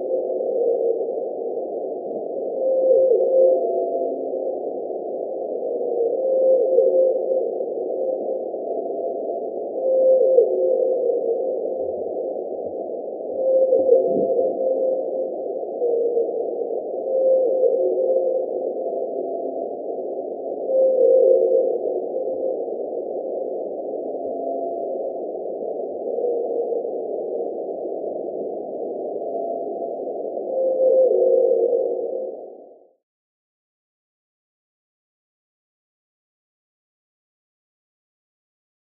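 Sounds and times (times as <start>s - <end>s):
whale calls humming tone: 13.4s - 16.4s.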